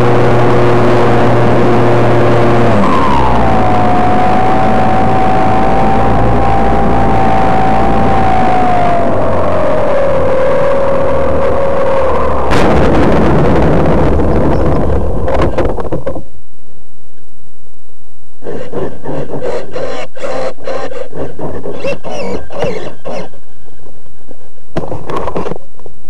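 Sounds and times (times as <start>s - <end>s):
plane scraping on asphalt: 18.4s - 25.6s.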